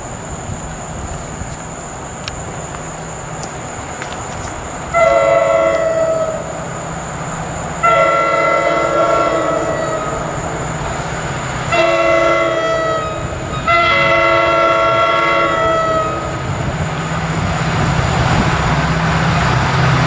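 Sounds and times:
diesel engine rumble: 0:00.0 - 0:20.0
rail noise: 0:00.0 - 0:20.0
train air horn blasts: 0:04.9 - 0:06.5, 0:07.8 - 0:10.4, 0:11.7 - 0:16.4.

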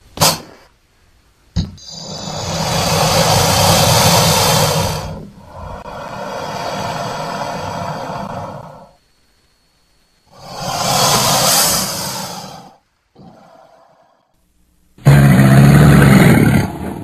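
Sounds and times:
crocodile hissing: 0:01.8 - 0:09.0, 0:10.3 - 0:14.3.

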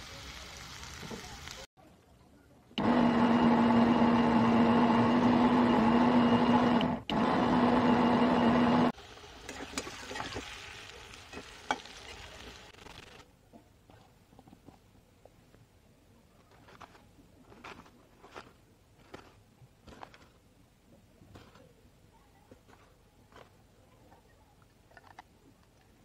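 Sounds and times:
mixer grinder motor whirring: 0:02.8 - 0:09.0.

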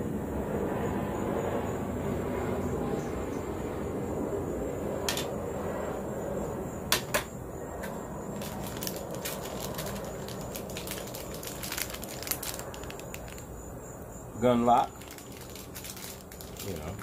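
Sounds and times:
low background rumble: 0:01.6 - 0:17.0
plastic bag crinkling: 0:08.4 - 0:13.5, 0:14.9 - 0:17.0.

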